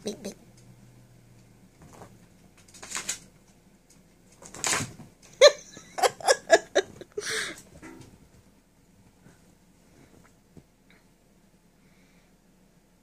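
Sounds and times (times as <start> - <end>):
person laughing: 5.4 - 7.6.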